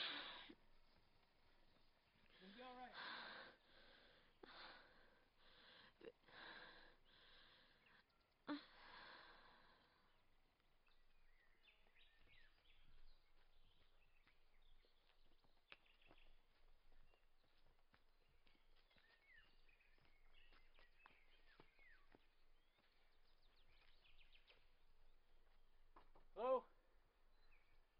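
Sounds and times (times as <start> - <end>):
woman breathing heavily: 0.0 - 0.6, 2.2 - 10.2
faint outdoor ambience: 0.0 - 27.9.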